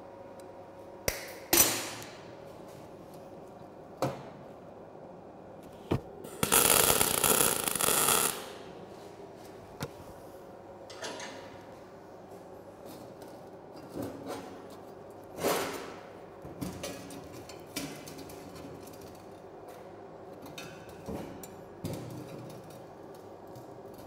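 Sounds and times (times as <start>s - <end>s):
welding arc crackling: 6.3s - 8.7s.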